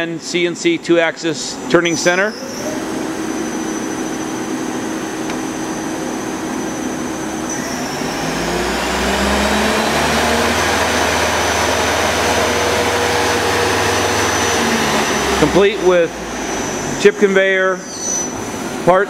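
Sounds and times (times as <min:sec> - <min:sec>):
machine shop machinery hum: 0:00.0 - 0:19.0.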